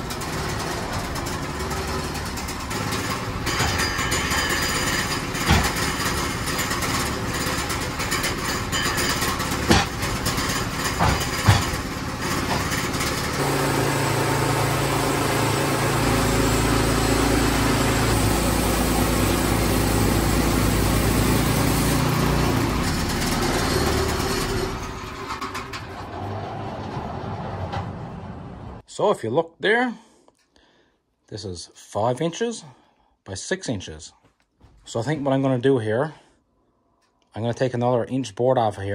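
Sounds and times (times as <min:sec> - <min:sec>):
bandsaw mill sawing log: 0:00.0 - 0:27.0
sharp knocks: 0:09.7 - 0:10.0, 0:11.0 - 0:11.9.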